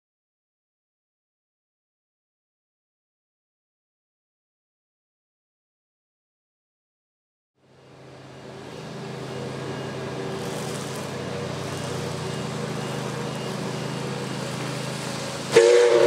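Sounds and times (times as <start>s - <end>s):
train rumble: 7.6s - 16.0s
steam hissing: 8.6s - 16.0s
steam locomotive whistle: 9.3s - 16.0s.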